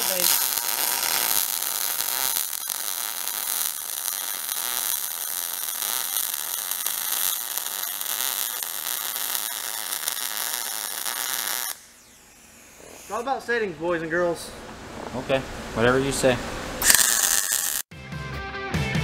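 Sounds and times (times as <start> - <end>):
welding arc crackling: 0.0 - 13.5, 16.8 - 17.9.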